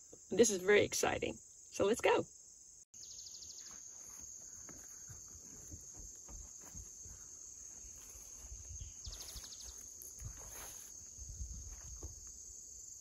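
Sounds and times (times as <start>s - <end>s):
high-pitched insect chorus: 0.0s - 13.0s
footsteps through vegetation: 3.5s - 12.2s.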